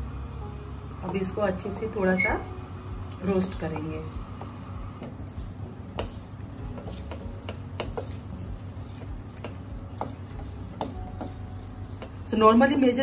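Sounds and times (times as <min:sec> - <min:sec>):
spatula tapping metal: 0:03.5 - 0:13.0.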